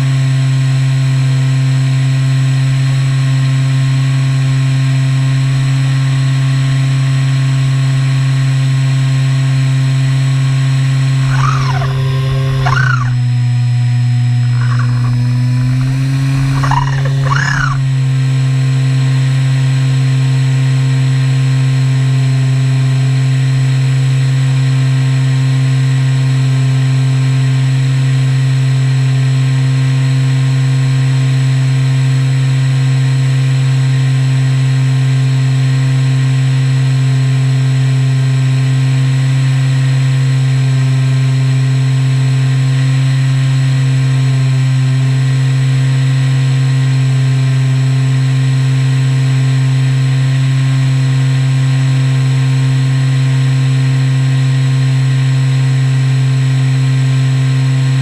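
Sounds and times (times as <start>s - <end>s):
electric motor and propeller droning: 11.0s - 18.0s.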